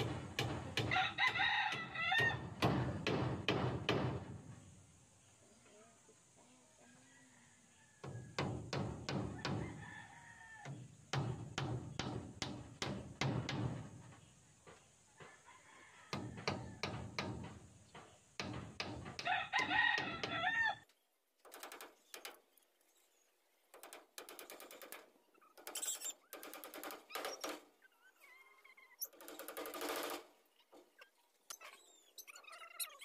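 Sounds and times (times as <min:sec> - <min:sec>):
hand tool striking wooden post: 0:00.0 - 0:04.2, 0:18.4 - 0:19.3
rooster crowing: 0:00.8 - 0:02.6, 0:06.9 - 0:08.4, 0:09.3 - 0:10.9, 0:15.3 - 0:17.0, 0:19.2 - 0:20.8.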